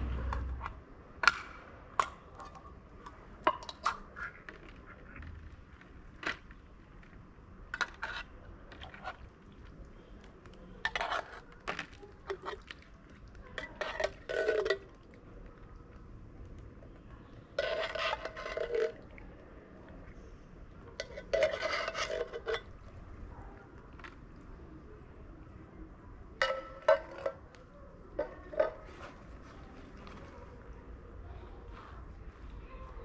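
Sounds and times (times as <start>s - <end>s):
food scraped from metal tin: 10.8s - 12.7s, 13.6s - 15.0s, 17.5s - 19.1s, 21.0s - 23.0s.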